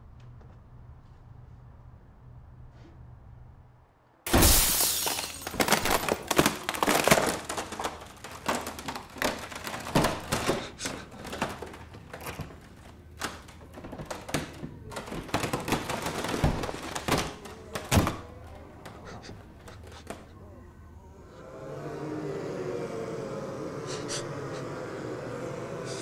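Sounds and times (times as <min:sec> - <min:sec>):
knocks and crashes: 0:04.3 - 0:18.4.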